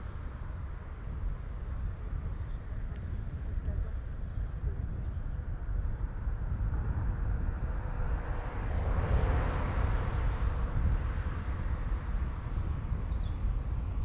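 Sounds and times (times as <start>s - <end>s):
low wind rumble: 0.0s - 14.0s
car passing close by: 7.6s - 12.9s.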